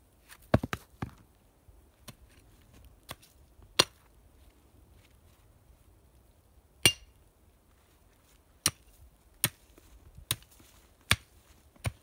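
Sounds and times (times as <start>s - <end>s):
digging tool chopping stony ground: 3.8s - 4.0s, 8.6s - 9.6s, 11.1s - 12.0s.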